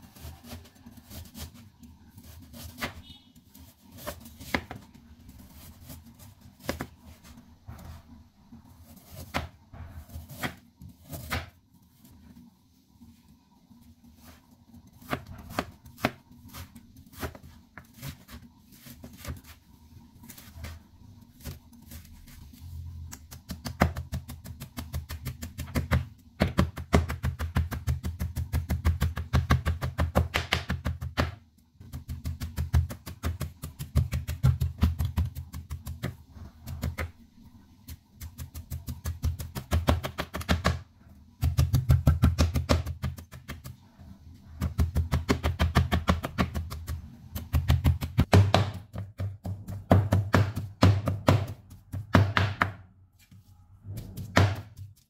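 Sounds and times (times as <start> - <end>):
knife chopping on wooden board: 9.1 - 11.5, 23.4 - 31.4, 44.6 - 52.8, 54.0 - 54.9.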